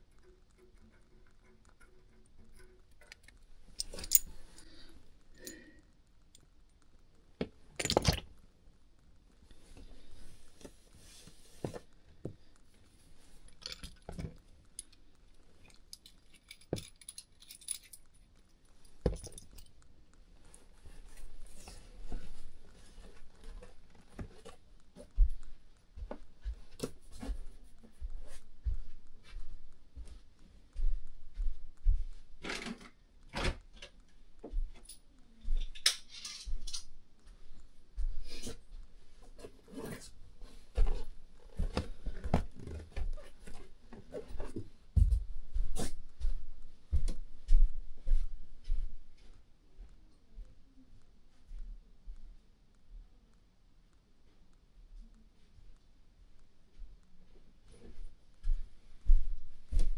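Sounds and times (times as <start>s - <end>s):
hand tools clinking on metal: 3.8s - 4.8s.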